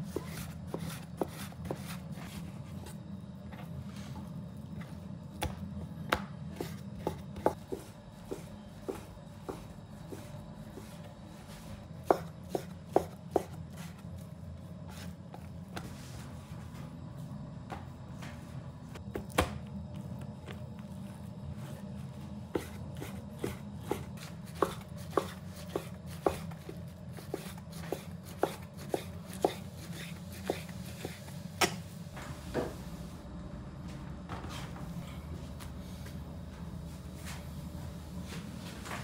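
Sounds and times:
low steady hum: 0:00.0 - 0:39.0
knife chopping on wooden board: 0:12.0 - 0:13.9, 0:22.6 - 0:26.6, 0:27.2 - 0:31.8.

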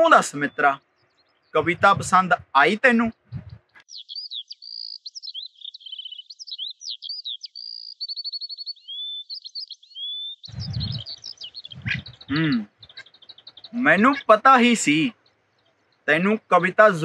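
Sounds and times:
songbirds singing: 0:00.0 - 0:17.0
low rumbling noise: 0:10.5 - 0:12.6.

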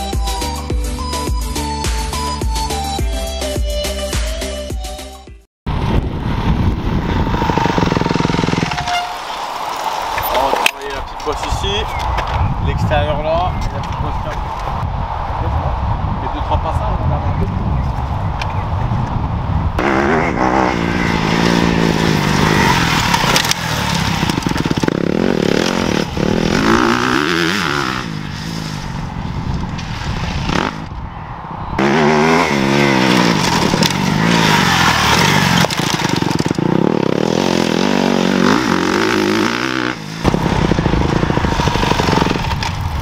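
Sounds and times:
motorbike engine revving: 0:05.9 - 0:09.2, 0:19.8 - 0:29.1, 0:30.2 - 0:30.9, 0:31.8 - 0:43.0.

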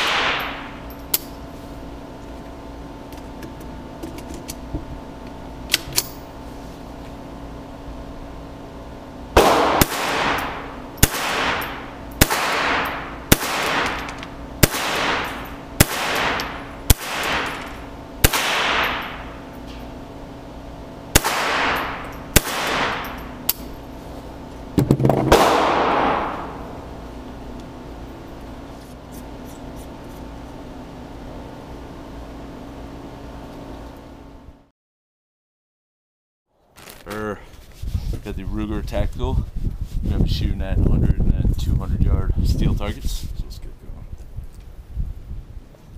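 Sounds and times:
heavy gun blast: 0:00.0 - 0:00.7, 0:09.4 - 0:19.4, 0:21.1 - 0:23.2, 0:24.8 - 0:26.7
rifle shots with echo: 0:00.0 - 0:00.7, 0:09.4 - 0:19.4, 0:21.1 - 0:23.2, 0:25.1 - 0:26.7
gun handling clicks: 0:13.6 - 0:14.3.

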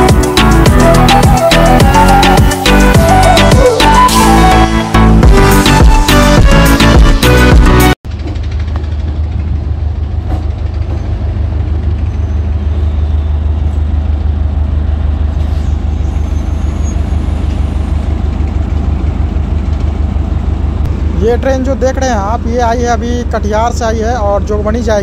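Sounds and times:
diesel train engine idling: 0:08.0 - 0:25.0.

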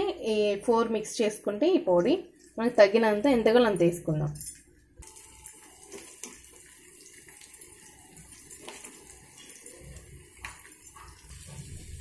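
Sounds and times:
frying sizzle in oil: 0:05.0 - 0:12.0.

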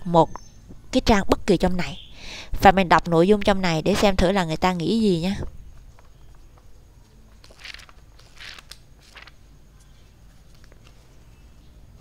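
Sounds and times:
book pages rustling: 0:05.7 - 0:11.4.

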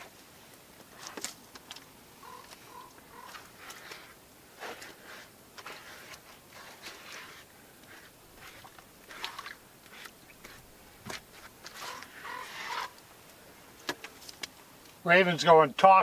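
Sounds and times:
crunching and scraping of stones: 0:00.8 - 0:13.0.

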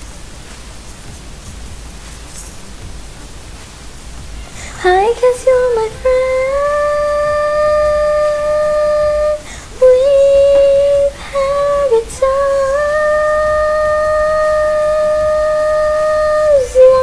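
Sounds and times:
high sung vocal notes: 0:03.8 - 0:17.0.

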